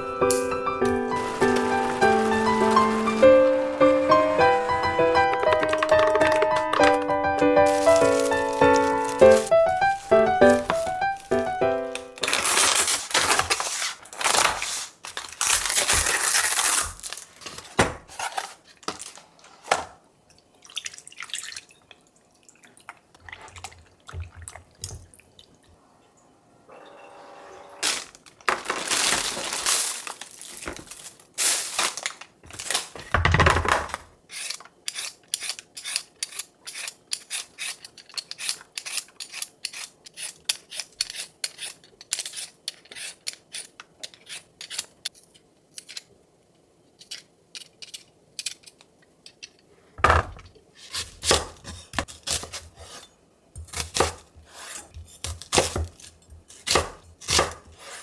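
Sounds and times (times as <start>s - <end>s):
plastic bag rustling: 0.8s - 19.6s, 27.8s - 33.2s
peeler scraping vegetable skin: 34.3s - 46.1s.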